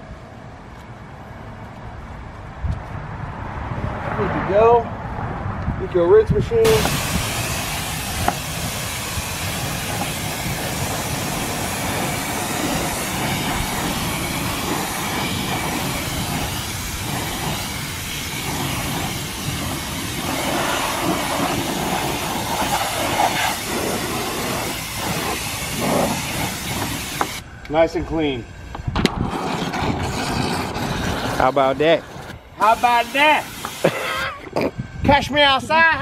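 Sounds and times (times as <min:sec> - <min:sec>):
water spray hissing on a wheel: 0:06.6 - 0:27.4, 0:29.3 - 0:34.1.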